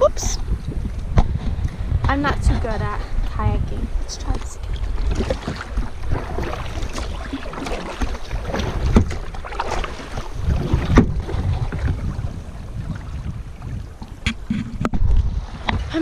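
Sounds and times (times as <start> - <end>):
water sloshing: 0.0 - 16.0
wind buffeting microphone: 0.0 - 16.0
paddle splashes: 3.9 - 16.0.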